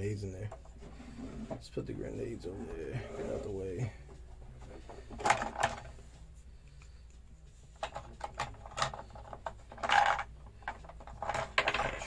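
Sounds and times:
plastic toy parts clicking and rattling: 0:05.1 - 0:05.9, 0:07.8 - 0:12.0.

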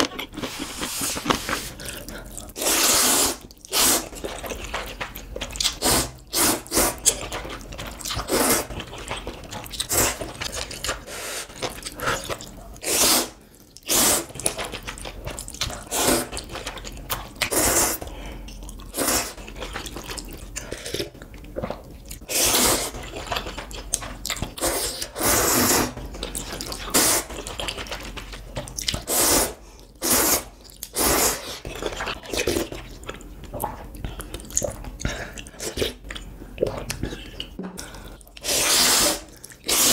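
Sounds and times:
slurping noodles: 0:00.0 - 0:04.5, 0:05.6 - 0:09.0, 0:09.7 - 0:16.6, 0:17.4 - 0:18.1, 0:18.8 - 0:21.1, 0:22.2 - 0:23.8, 0:24.4 - 0:28.0, 0:28.8 - 0:32.9, 0:38.3 - 0:39.9
wet chewing: 0:00.0 - 0:29.2, 0:29.8 - 0:39.9.

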